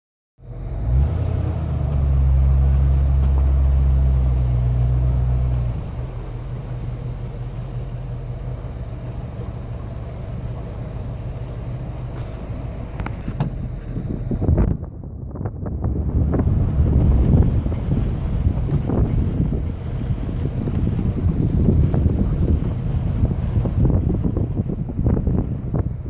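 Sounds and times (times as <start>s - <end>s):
vehicle engine rumble: 0.4s - 26.0s
wind on microphone: 13.0s - 26.0s.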